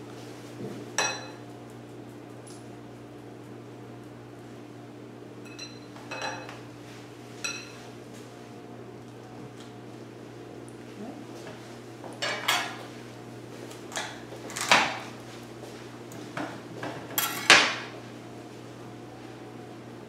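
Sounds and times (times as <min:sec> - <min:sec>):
kitchen utensils clattering: 0:05.5 - 0:06.5, 0:12.2 - 0:12.8, 0:16.8 - 0:17.9.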